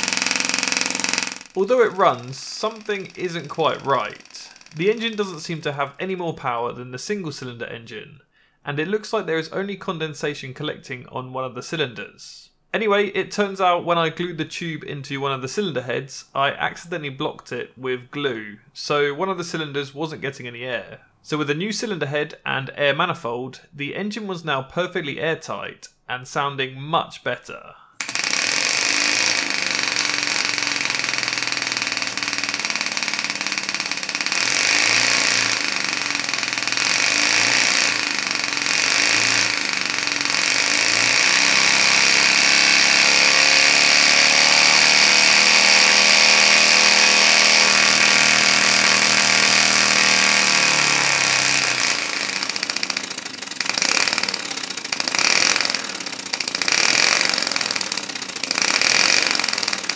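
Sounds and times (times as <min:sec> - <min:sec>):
air engine exhaust buzz: 0:00.0 - 0:05.5, 0:28.0 - 0:59.9.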